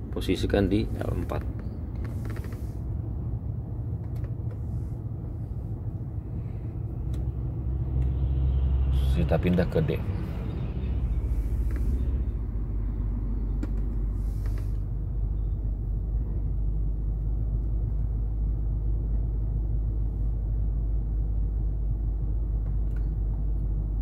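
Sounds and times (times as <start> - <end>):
engine low rumble: 0.0 - 24.0
click: 22.6 - 23.1.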